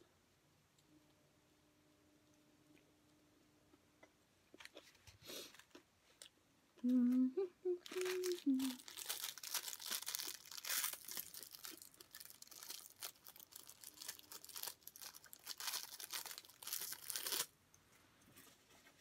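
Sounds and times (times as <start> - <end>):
cellophane packet crinkling: 7.8 - 17.5
packet being torn open: 7.9 - 17.5.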